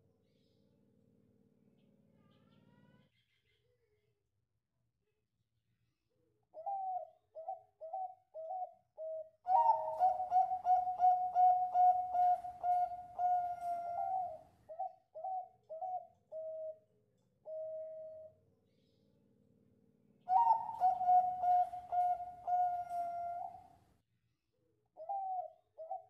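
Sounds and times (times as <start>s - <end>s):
dove cooing: 6.6s - 18.4s, 20.2s - 23.8s, 25.0s - 26.0s.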